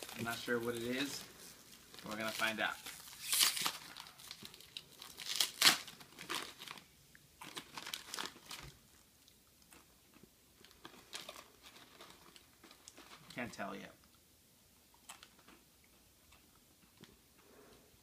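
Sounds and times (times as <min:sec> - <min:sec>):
plastic bag crinkling and tearing: 0:00.0 - 0:08.8, 0:10.6 - 0:13.6.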